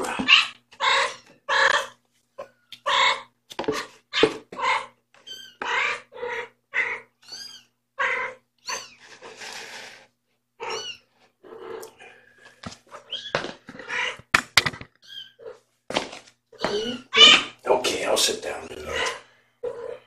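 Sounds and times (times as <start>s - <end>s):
cat meowing: 4.2s - 9.0s, 10.6s - 11.9s, 16.6s - 17.6s.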